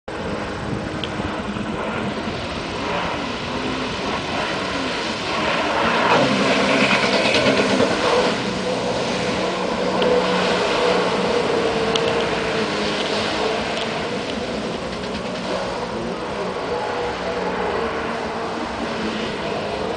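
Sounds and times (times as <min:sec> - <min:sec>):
jet ski engine whine: 0:00.1 - 0:19.9.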